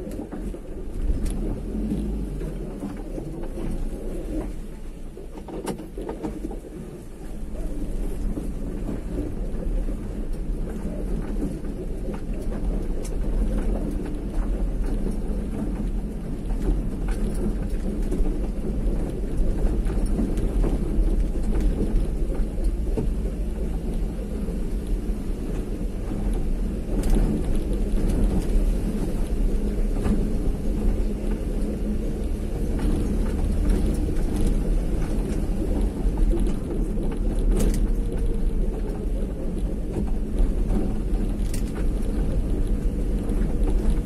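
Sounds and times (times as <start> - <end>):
vehicle road noise rumble: 0.0 - 44.0
small clicks and knocks: 10.3 - 44.0.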